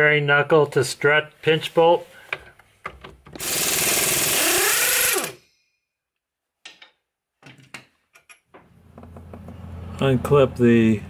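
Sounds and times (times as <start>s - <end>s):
impact wrench hammering: 3.4s - 5.5s.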